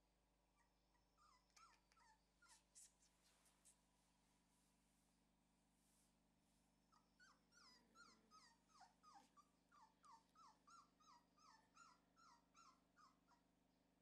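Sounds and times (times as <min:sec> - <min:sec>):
puppy whimpering: 0:00.6 - 0:02.8, 0:06.9 - 0:13.4.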